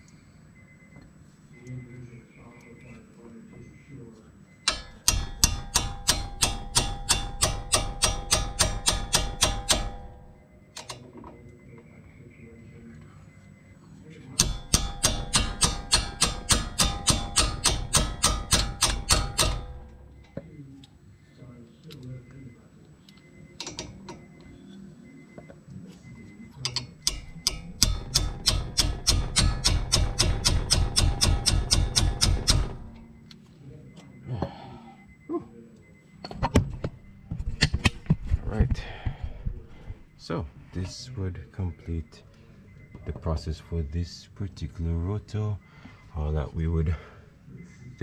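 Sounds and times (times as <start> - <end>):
hammer striking metal wrench: 4.7 - 11.0, 14.4 - 20.4, 23.6 - 24.3, 26.6 - 33.2.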